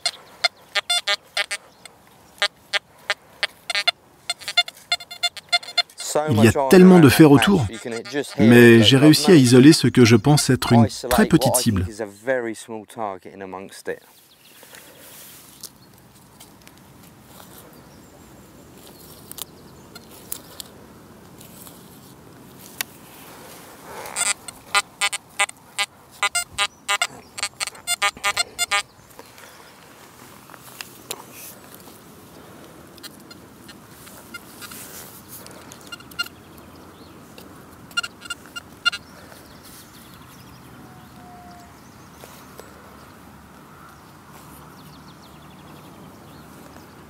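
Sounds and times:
metal detector beeping: 0.0 - 1.6, 3.4 - 11.6, 24.2 - 28.8, 35.8 - 36.3, 37.9 - 39.0
fingers rubbing soil: 0.0 - 10.7, 23.4 - 28.8
metal detector high-pitched beeps: 0.8 - 1.6, 3.7 - 6.0, 26.2 - 28.8, 35.9 - 36.3, 37.9 - 39.0.

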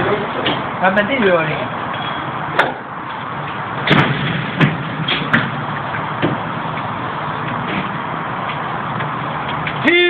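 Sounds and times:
steady background noise: 0.0 - 10.0
metal clanks of pallet truck: 3.8 - 5.6.

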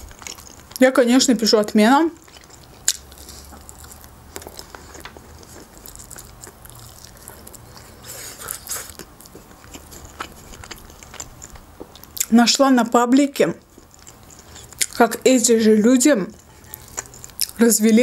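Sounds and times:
close chewing mouth clicks: 2.2 - 12.3, 13.6 - 15.0, 16.3 - 17.6.

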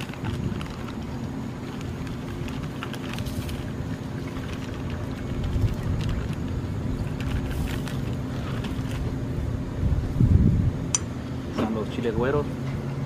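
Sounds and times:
plastic bag crinkling: 0.0 - 9.2
steady low rumble: 0.0 - 13.0.

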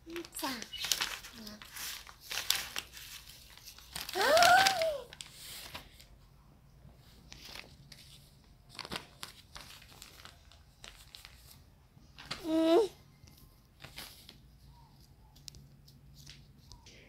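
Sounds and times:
paper rustling and crinkling: 0.0 - 6.2, 7.0 - 16.8
child squealing: 4.2 - 5.1.

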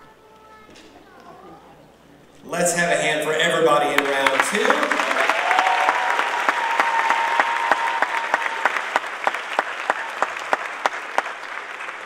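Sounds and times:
audience applauding: 3.5 - 12.0
long high cheer: 4.0 - 12.0.

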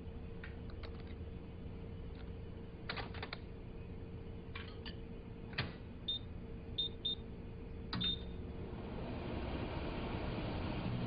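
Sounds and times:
microwave oven clicks and knocks: 4.5 - 5.9, 7.9 - 8.3
keypad beeps: 8.0 - 8.3.

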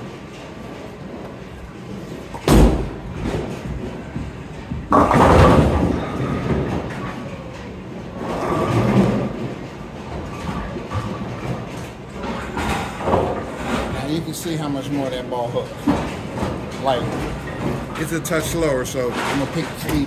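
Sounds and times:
bowling pins crashing: 2.4 - 4.2, 4.8 - 7.0.

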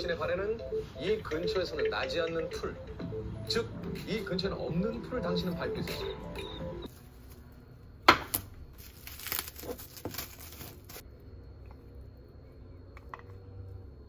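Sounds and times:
cling wrap crackling: 8.7 - 11.0.

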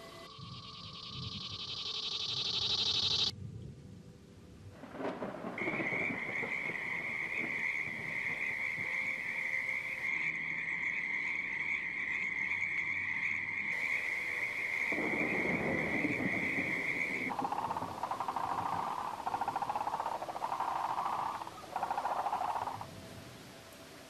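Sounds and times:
high-pitched steady tone: 0.0 - 3.3
low rapidly pulsing call: 14.9 - 22.8.

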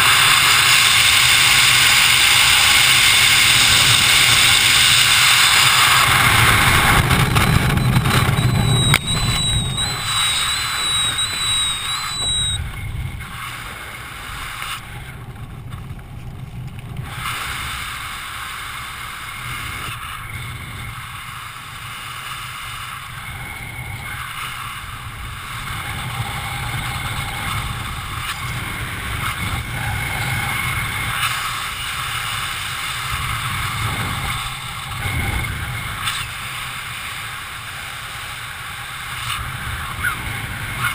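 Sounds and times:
wind rushing over camera: 0.0 - 40.9
thin wavering high tone: 3.2 - 13.4.

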